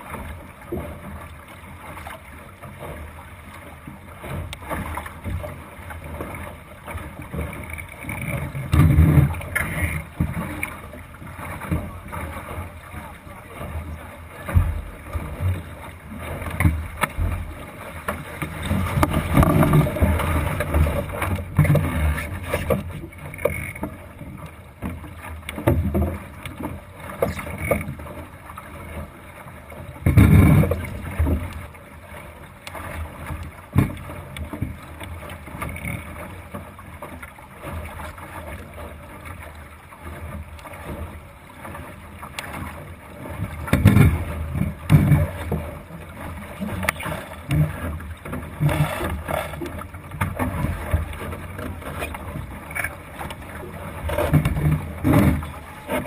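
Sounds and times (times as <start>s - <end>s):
water slapping against boat hull: 0.0s - 56.0s.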